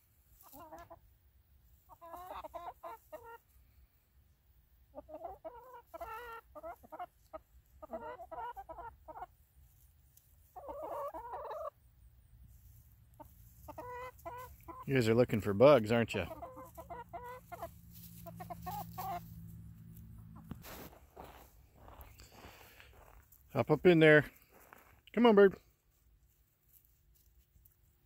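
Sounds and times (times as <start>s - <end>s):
hens clucking: 0.2s - 24.7s.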